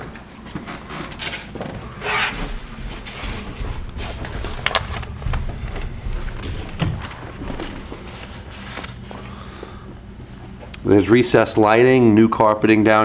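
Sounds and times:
footsteps on carpeted stairs: 0:00.0 - 0:09.3
low handling rumble: 0:00.0 - 0:11.9.

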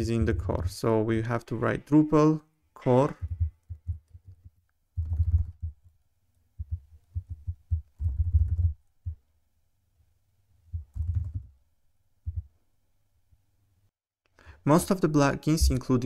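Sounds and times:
typing on computer keyboard: 0:05.0 - 0:05.8, 0:07.2 - 0:08.8, 0:10.8 - 0:11.5.

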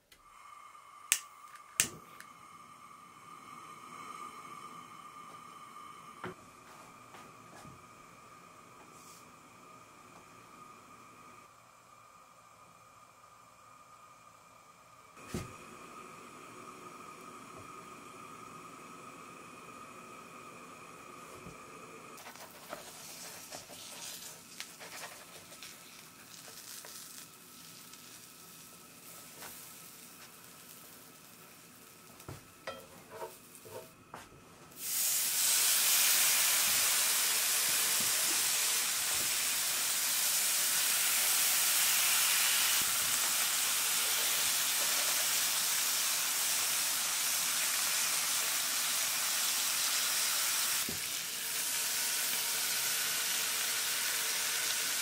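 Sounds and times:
batter sizzling in a pan: 0:22.1 - 0:33.9, 0:34.7 - 0:55.0.

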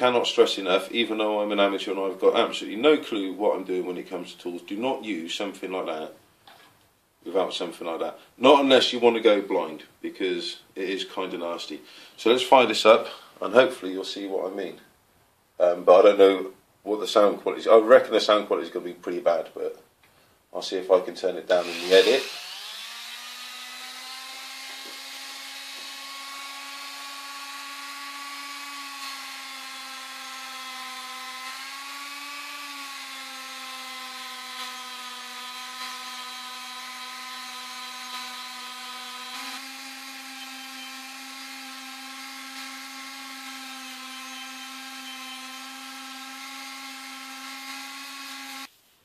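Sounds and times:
rotary tool motor whine: 0:21.6 - 0:48.7.

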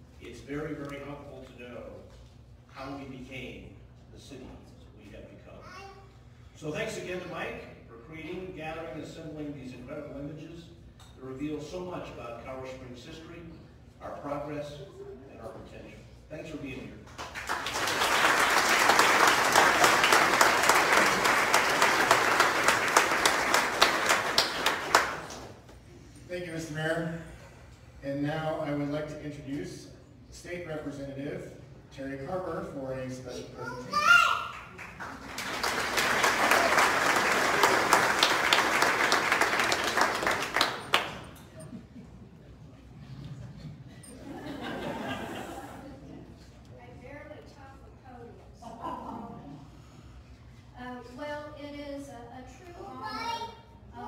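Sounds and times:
audience applauding: 0:17.2 - 0:25.5, 0:34.5 - 0:41.6.

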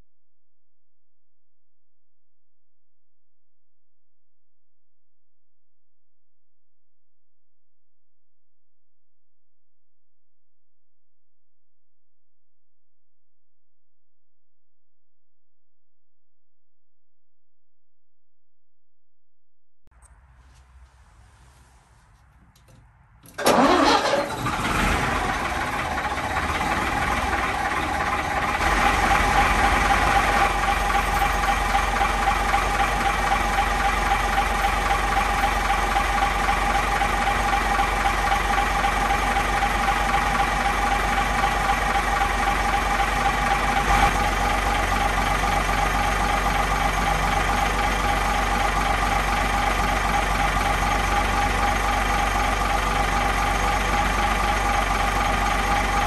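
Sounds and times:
diesel generator starting and running: 0:21.6 - 0:56.0
deep hum: 0:24.6 - 0:56.0.

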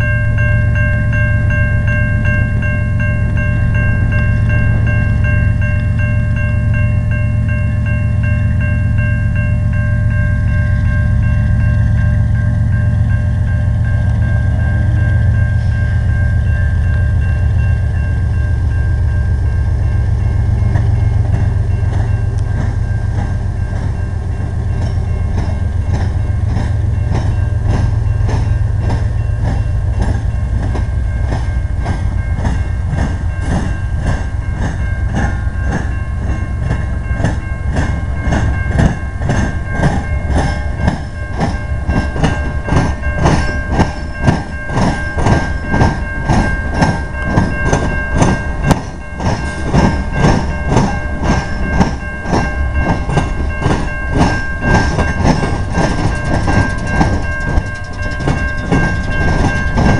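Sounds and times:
diesel locomotives rumbling: 0:00.0 - 0:59.9
train wheels clickety-clack: 0:02.2 - 0:59.9
thin steady whine: 0:53.9 - 0:59.9.

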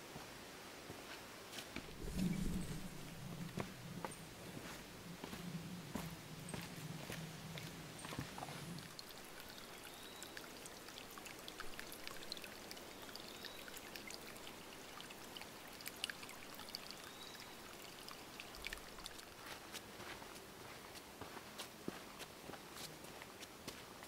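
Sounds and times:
stream trickling over rocks: 0:01.8 - 0:21.3
water drips: 0:01.9 - 0:19.8.

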